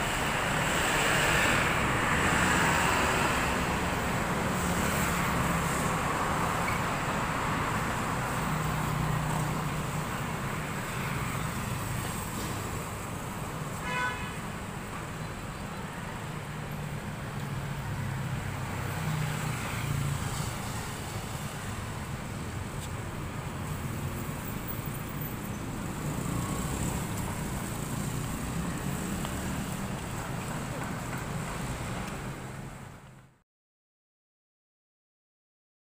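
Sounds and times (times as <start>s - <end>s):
motorcycles passing: 0.0s - 12.7s, 17.6s - 32.0s
cars passing: 0.0s - 33.3s
low traffic rumble: 0.0s - 33.4s.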